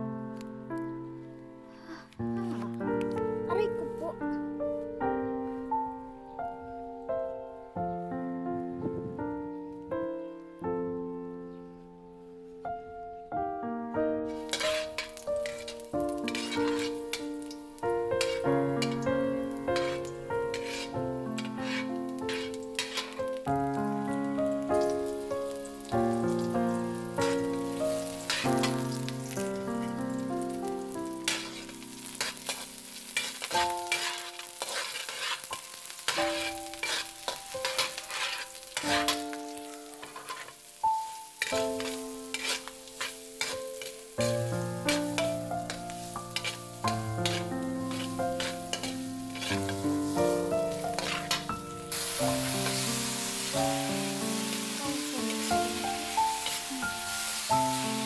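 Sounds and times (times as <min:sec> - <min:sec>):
background music held notes: 0:00.0 - 0:34.6, 0:35.5 - 0:58.0
vegetables sizzling: 0:14.2 - 0:58.0
metal spatula scraping wok: 0:14.3 - 0:23.5, 0:27.2 - 0:29.0, 0:31.2 - 0:54.2.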